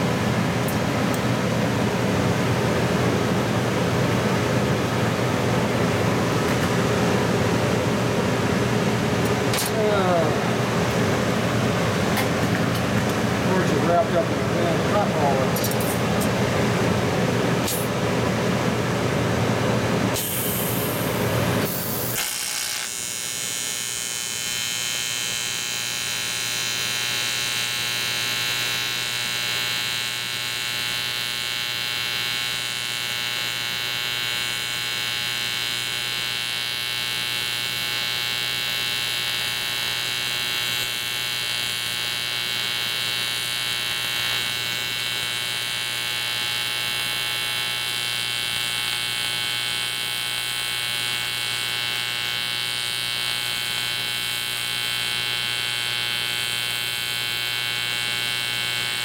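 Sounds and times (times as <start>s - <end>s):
welding arc buzzing: 17.5s - 18.0s, 20.1s - 59.0s.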